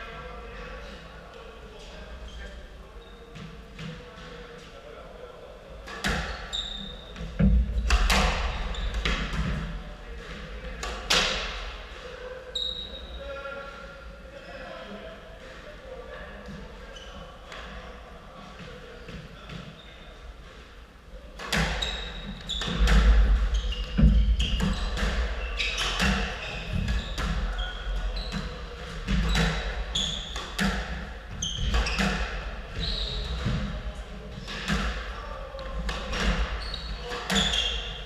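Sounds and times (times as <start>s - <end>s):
squash racket strikes: 5.8s - 6.5s, 7.2s - 11.8s, 21.4s - 27.6s, 28.3s - 32.5s, 34.4s - 35.1s, 35.7s - 37.8s
shoes squeaking on wooden floor: 6.1s - 9.6s, 21.6s - 33.7s, 36.0s - 38.0s
ball hitting court walls: 7.2s - 9.7s, 21.4s - 27.6s, 28.3s - 33.7s.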